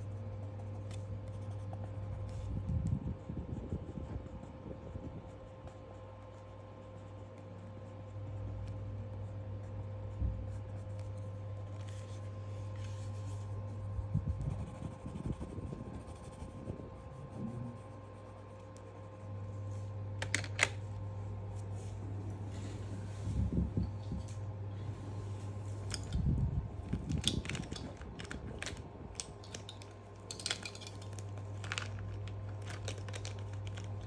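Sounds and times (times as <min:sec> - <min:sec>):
pencil scratching on paper: 0:00.0 - 0:20.0
steady low hum: 0:00.0 - 0:34.0.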